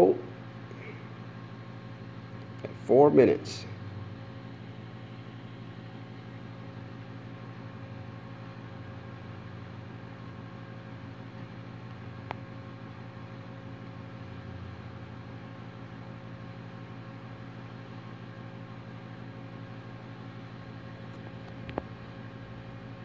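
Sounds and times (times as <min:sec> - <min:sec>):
transformer electrical hum: 0:00.0 - 0:23.0.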